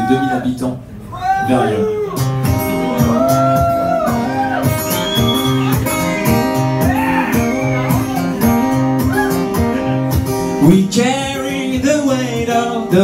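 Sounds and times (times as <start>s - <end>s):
acoustic guitar strumming: 2.1s - 13.0s.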